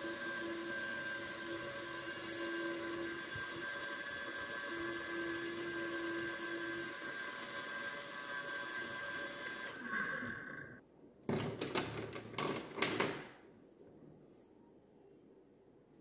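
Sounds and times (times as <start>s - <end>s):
desk fan motor whine: 0.0s - 10.8s.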